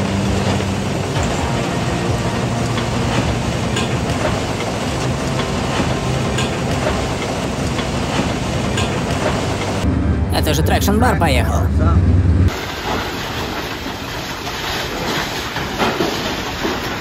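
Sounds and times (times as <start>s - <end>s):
vehicle engine rumble: 0.0s - 12.6s
metallic clanks and rattles: 2.6s - 9.8s.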